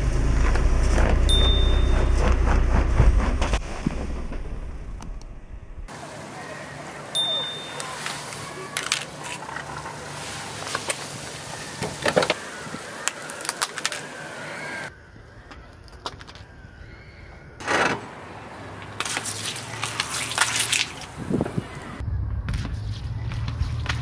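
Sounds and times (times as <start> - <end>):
phone handled on gravel: 7.7 - 10.0.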